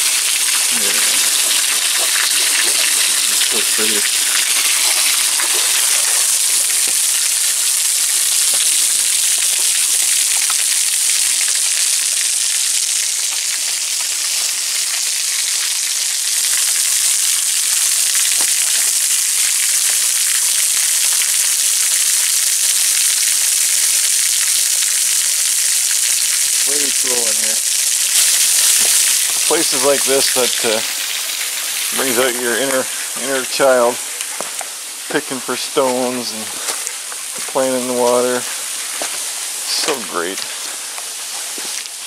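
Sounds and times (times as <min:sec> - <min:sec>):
waterfall splashing into pool: 0:00.0 - 0:40.5.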